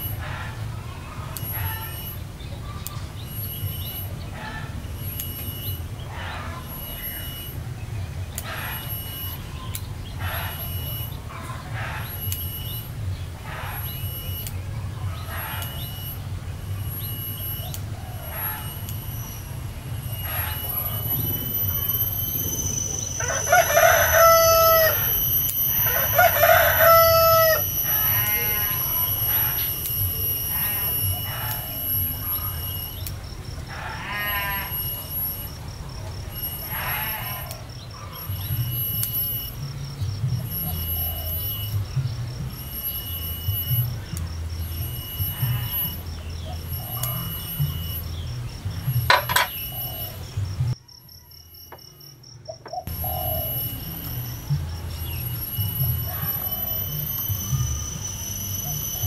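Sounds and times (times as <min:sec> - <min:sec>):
high whistling calls: 0:00.0 - 0:59.0
steady low hum: 0:00.0 - 0:59.0
rooster crowing: 0:20.2 - 0:32.8
scissors laid on stone table: 0:49.1 - 0:49.5.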